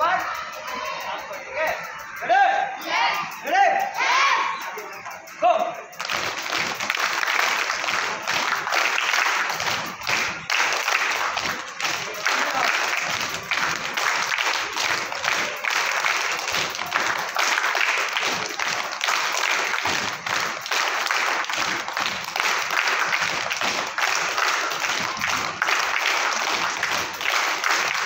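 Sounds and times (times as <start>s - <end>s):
children clapping hands: 4.6s - 28.0s.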